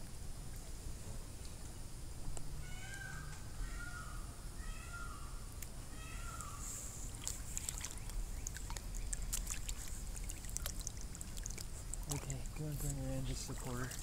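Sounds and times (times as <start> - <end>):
pawing water splashes: 7.1 - 14.0.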